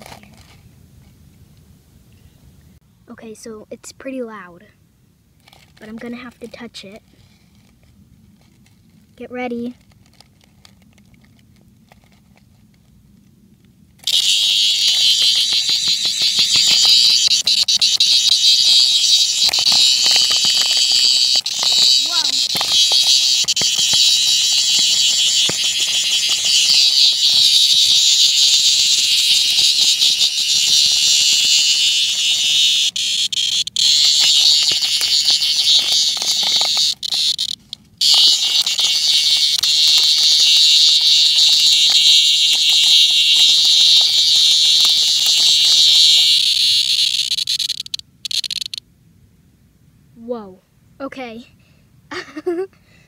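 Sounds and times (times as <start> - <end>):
cicada buzzing call: 14.0 - 48.8.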